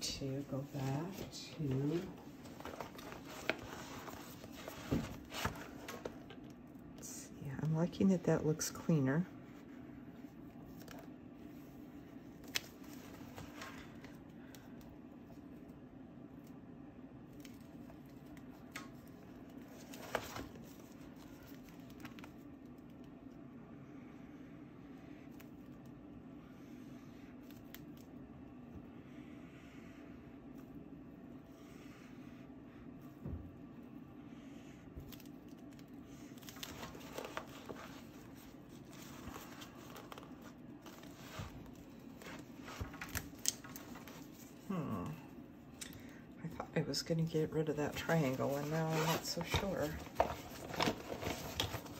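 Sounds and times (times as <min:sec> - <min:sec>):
steady low hum: 0:00.0 - 0:51.9
paper rustle with sharp click: 0:35.0 - 0:44.5.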